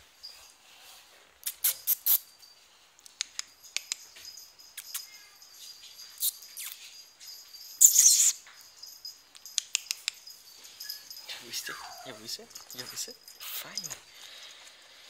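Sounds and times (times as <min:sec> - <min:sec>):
dog claws clicking on tile: 0:03.1 - 0:04.2, 0:09.4 - 0:10.3.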